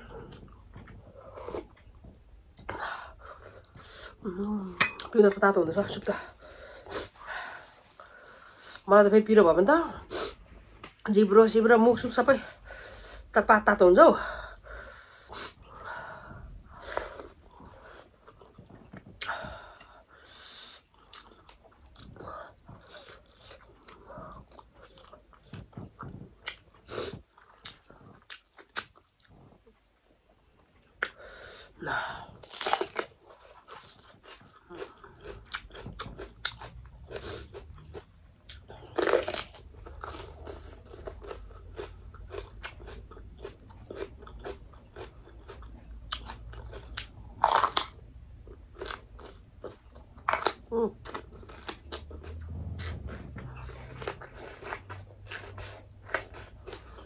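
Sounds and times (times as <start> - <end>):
person chewing crunchy food: 0.0 - 2.7, 16.7 - 29.8, 32.4 - 57.0.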